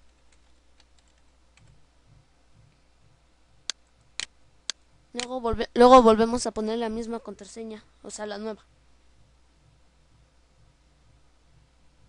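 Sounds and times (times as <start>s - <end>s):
keyboard typing: 0.0s - 1.8s.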